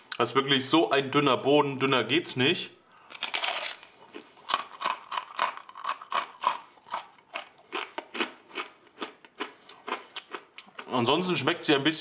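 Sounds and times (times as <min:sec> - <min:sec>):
open-mouthed chewing: 0:02.9 - 0:11.0
person crunching pizza crust: 0:03.0 - 0:10.9.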